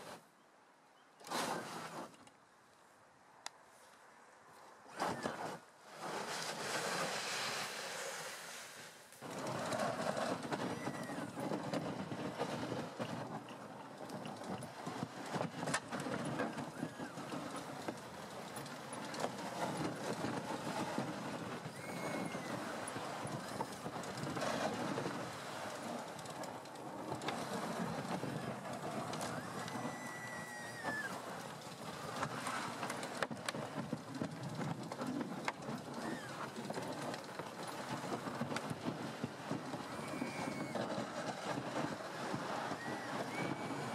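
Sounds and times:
tracks clattering over snow: 4.5 - 7.9, 9.1 - 43.9
sleds bumping: 9.2 - 43.9.

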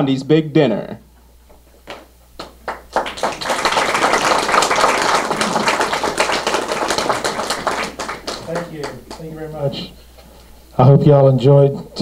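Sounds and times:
crowd applauding: 2.4 - 9.6.

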